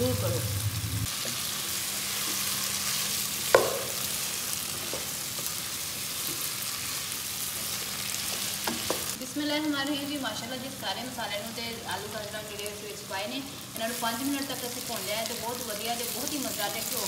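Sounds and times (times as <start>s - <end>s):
vegetables sizzling in a pot: 0.0s - 17.0s
sharp knock: 3.5s - 4.0s.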